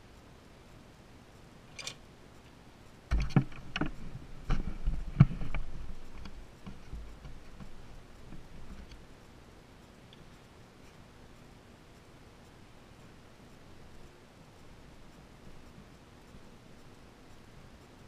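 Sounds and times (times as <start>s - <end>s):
faint ticks: 0.0s - 18.0s
sharp knocks and clicks: 3.1s - 9.0s.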